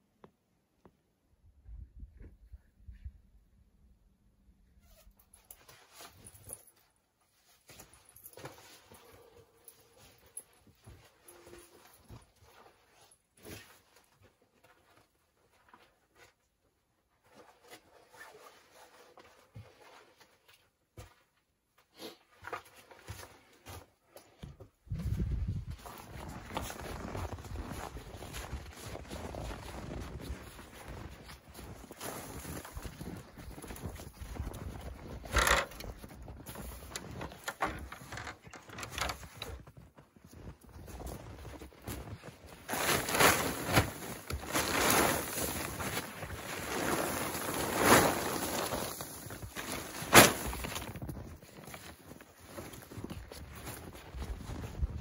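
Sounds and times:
rustling of clothing: 0:04.8 - 0:55.0
footsteps crunching in snow: 0:22.0 - 0:55.0
stepladder knocks and scrapes: 0:36.7 - 0:39.5.

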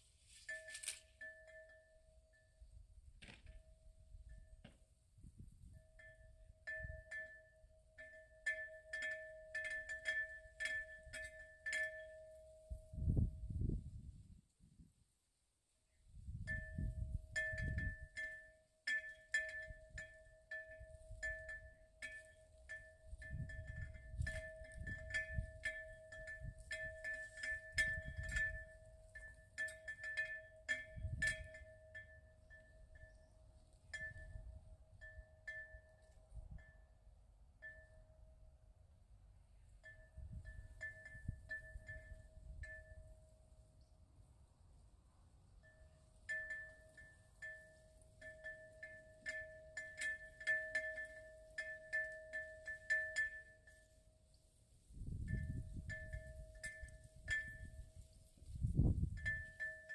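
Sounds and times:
wind chime ringing: 0:00.2 - 0:03.0, 0:05.4 - 0:13.5, 0:16.4 - 0:38.5, 0:39.6 - 0:43.9, 0:45.5 - 0:59.9
wind rumbling on microphone: 0:02.6 - 0:07.1, 0:12.7 - 0:15.0, 0:16.0 - 0:18.2, 0:22.6 - 0:30.0, 0:30.8 - 0:31.7, 0:40.0 - 0:43.1, 0:54.8 - 0:59.9.

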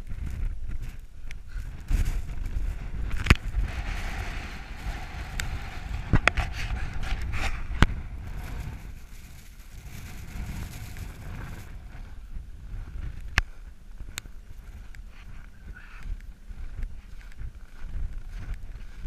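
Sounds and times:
gusting wind buffeting microphone: 0:00.0 - 0:19.0
hiss of blowing snow: 0:03.4 - 0:12.0.

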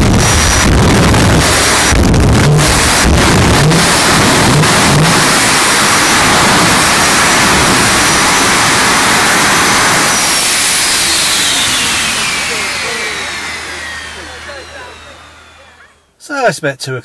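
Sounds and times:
jet engine roaring with whistle: 0:00.0 - 0:16.1.

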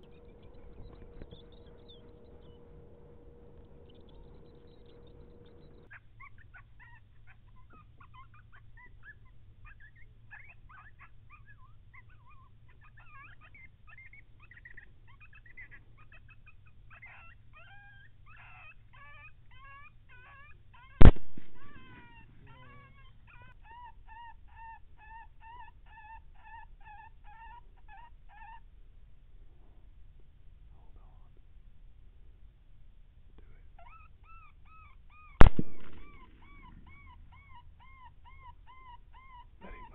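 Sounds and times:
coyote yelps: 0:00.0 - 0:29.0, 0:33.4 - 0:39.9
coyotes yipping and howling: 0:00.0 - 0:29.8, 0:33.4 - 0:39.9
suppressed rifle shot: 0:21.0 - 0:22.0, 0:35.4 - 0:36.8.

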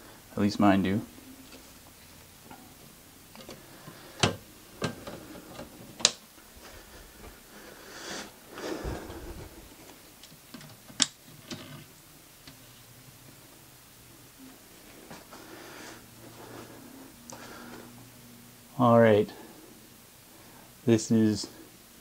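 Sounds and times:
sharp clicks and knocks: 0:04.2 - 0:06.2.

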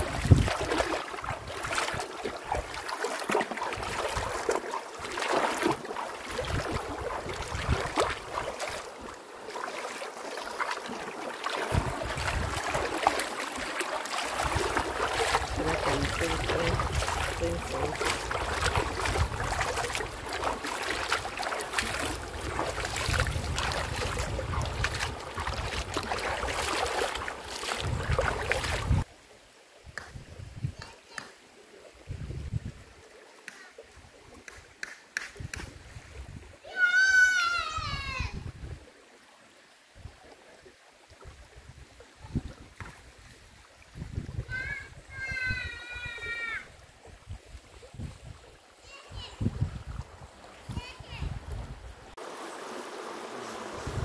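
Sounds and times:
wind buffeting microphone: 0:00.0 - 0:02.8, 0:06.2 - 0:08.6, 0:11.7 - 0:13.0, 0:14.4 - 0:29.1, 0:29.9 - 0:30.9, 0:32.0 - 0:32.9, 0:35.3 - 0:36.6, 0:37.8 - 0:38.8, 0:43.9 - 0:52.2, 0:53.7 - 0:54.0
river water rushing: 0:00.0 - 0:29.0, 0:52.1 - 0:54.0.

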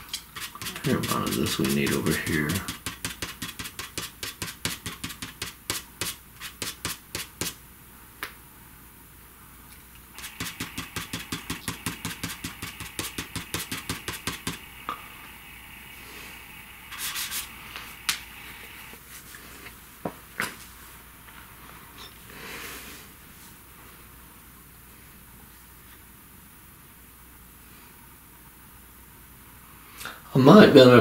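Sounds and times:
pastel scratching across paper: 0:00.4 - 0:07.6, 0:10.2 - 0:14.6, 0:16.9 - 0:17.6.

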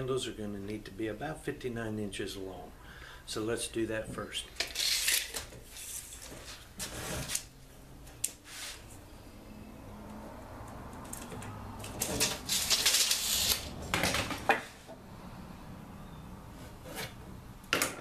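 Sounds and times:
scraping rustle on workbench: 0:05.6 - 0:07.5, 0:08.4 - 0:08.9
tape measure clicks: 0:12.2 - 0:13.8.

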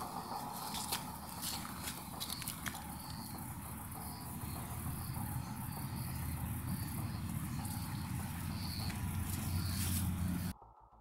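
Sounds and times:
insects chirping: 0:00.0 - 0:10.6
low rumble: 0:00.0 - 0:11.0.

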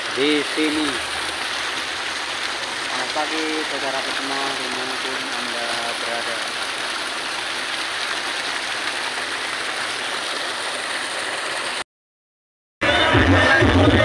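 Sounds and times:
water flowing in a channel: 0:00.0 - 0:11.8
loud music with heavy bass: 0:12.8 - 0:14.0.

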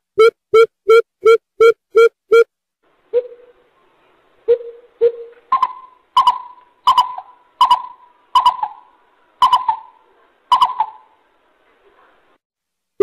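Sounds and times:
bird deep hollow hoots: 0:04.5 - 0:11.1.

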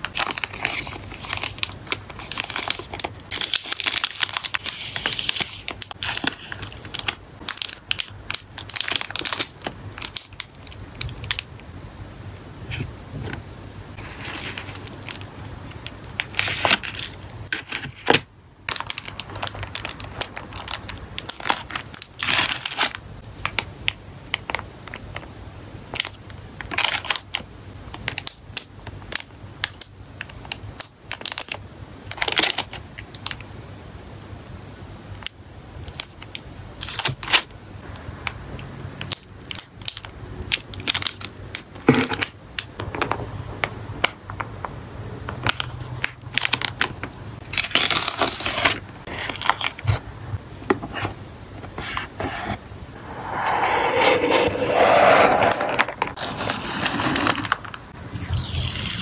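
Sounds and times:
plastic and foil bags crinkling: 0:00.0 - 0:10.4, 0:18.7 - 0:23.0, 0:46.4 - 0:49.9.

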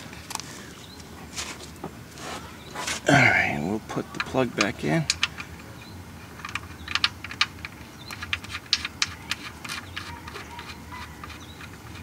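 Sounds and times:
drain plug clicking and ticking: 0:04.1 - 0:05.6, 0:06.4 - 0:12.0.

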